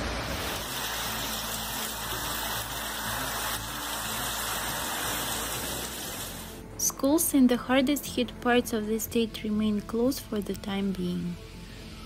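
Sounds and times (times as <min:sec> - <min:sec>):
heavy rain in strong wind: 0:00.0 - 0:06.5.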